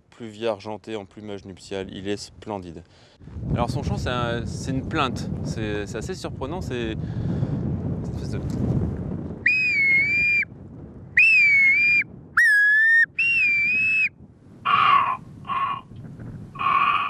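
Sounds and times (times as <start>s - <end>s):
man whistling through cupped hands: 9.4s - 10.5s, 11.2s - 14.1s.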